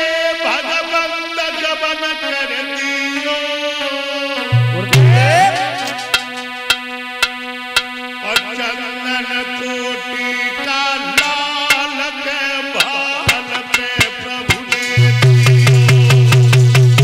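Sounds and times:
man singing: 0.0 - 6.0, 8.2 - 17.0
held keyboard chord: 4.5 - 9.0, 11.0 - 17.0
sharp drum hits: 4.6 - 8.5, 11.2 - 11.9, 12.8 - 16.1.

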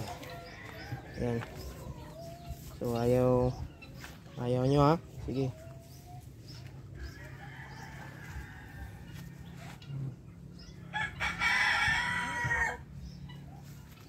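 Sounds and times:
hen clucking: 0.0 - 14.0
rooster crowing: 7.0 - 9.7, 10.9 - 12.8.

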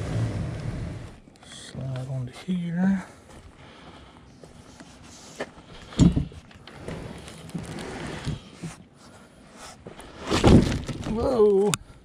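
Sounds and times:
cardboard box scraping: 6.7 - 8.8, 9.6 - 11.2
heavy box thumps: 10.2 - 11.2.

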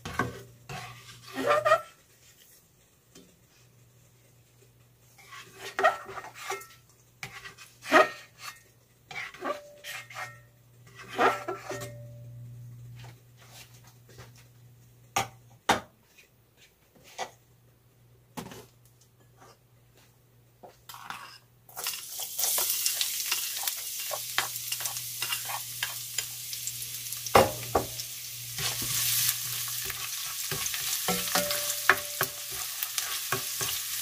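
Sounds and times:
spatula scraping a metal pot: 0.2 - 2.0, 5.2 - 12.0, 20.9 - 26.3
garlic frying in oil: 21.7 - 34.0.

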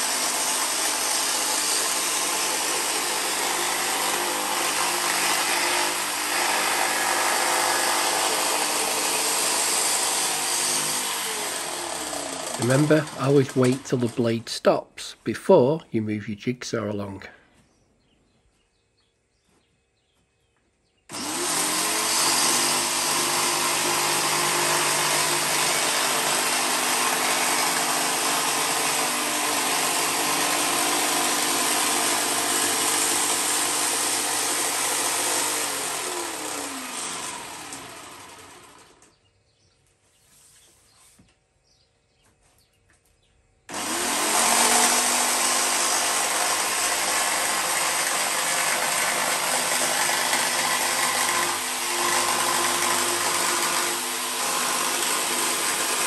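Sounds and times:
jigsaw cutting plastic panel: 0.0 - 14.4, 21.1 - 39.2, 43.7 - 56.0.

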